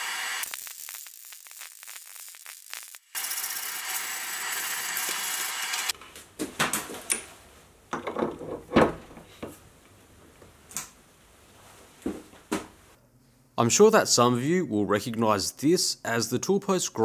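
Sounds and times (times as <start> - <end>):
harsh hiss: 0.0 - 5.9
metal clunks and clicks: 7.9 - 9.6.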